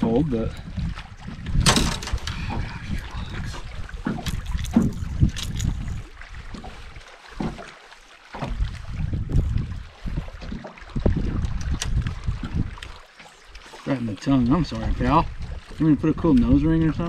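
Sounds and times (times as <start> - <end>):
wind buffeting microphone: 0.0 - 7.0, 8.4 - 13.1, 14.1 - 17.0
handling clicks and knocks: 1.6 - 2.4.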